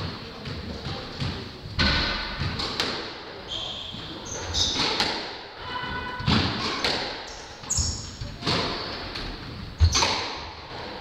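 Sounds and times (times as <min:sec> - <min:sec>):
ball hitting court walls: 0:00.0 - 0:11.0
racquets hitting squash ball: 0:00.0 - 0:11.0
shoes squeaking on wooden floor: 0:03.4 - 0:05.0, 0:05.6 - 0:11.0.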